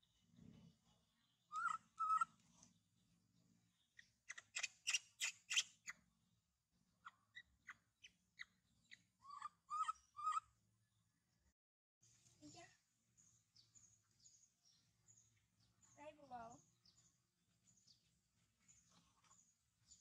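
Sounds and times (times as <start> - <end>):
high-pitched chirping calls: 1.5 - 2.3, 4.0 - 6.0, 7.0 - 10.5.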